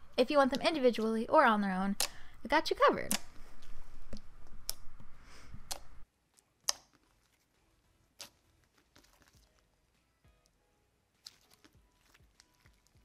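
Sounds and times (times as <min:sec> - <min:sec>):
low background hum: 0:00.0 - 0:12.0
sharp clicks and pops: 0:01.9 - 0:02.3, 0:03.0 - 0:03.4
slime squished by hand: 0:06.4 - 0:09.7, 0:11.2 - 0:13.0.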